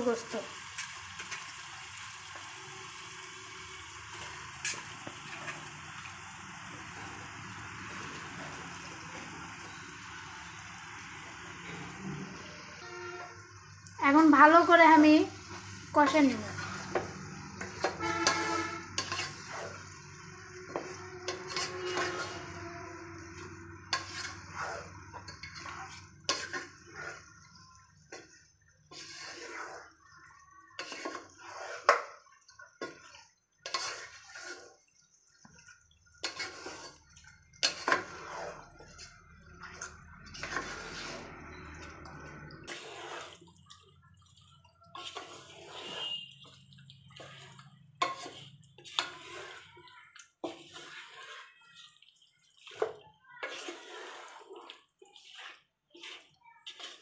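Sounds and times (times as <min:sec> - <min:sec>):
wooden spatula scraping pot: 0:03.6 - 0:06.1, 0:14.1 - 0:57.0.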